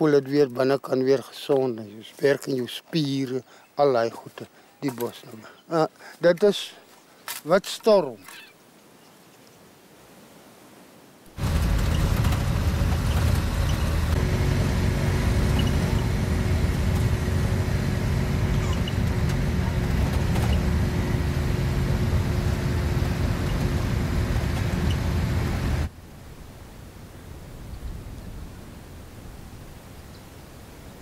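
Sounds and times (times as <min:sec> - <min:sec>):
vehicle engine and road rumble: 0:11.3 - 0:25.9
steady hum: 0:11.4 - 0:25.9.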